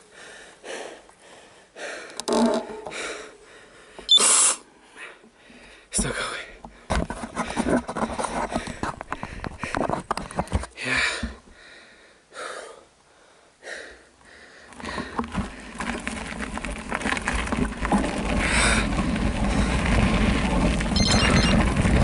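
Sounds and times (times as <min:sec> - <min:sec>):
rider breathing: 0:00.0 - 0:16.3, 0:18.1 - 0:20.6
bike tyres rolling over gravel: 0:14.6 - 0:22.0.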